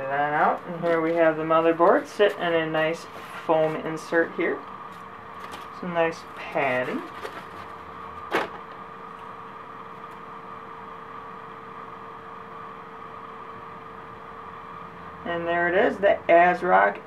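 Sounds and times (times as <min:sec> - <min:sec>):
room hum with mid-pitched tone: 0:00.0 - 0:17.0.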